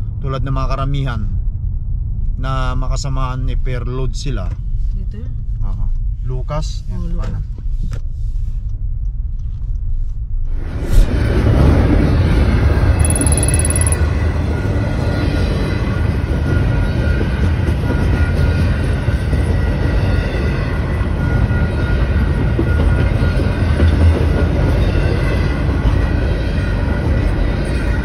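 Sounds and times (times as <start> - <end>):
freight train rumbling past: 10.5 - 13.0, 14.0 - 28.0.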